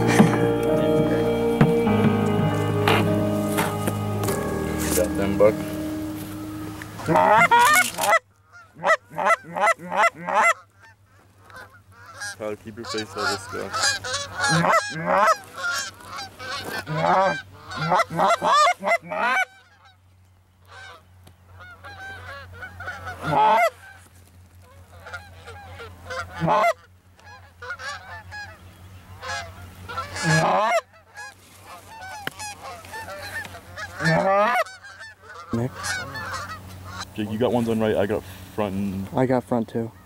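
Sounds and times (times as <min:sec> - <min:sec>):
geese honking and clucking: 0:00.0 - 0:40.0.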